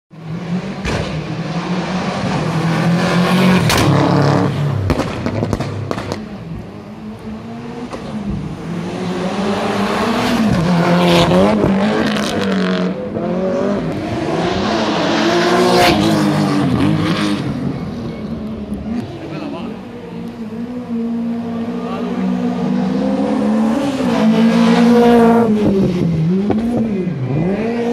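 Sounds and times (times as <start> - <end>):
rally car engine revving: 0.1 - 27.9.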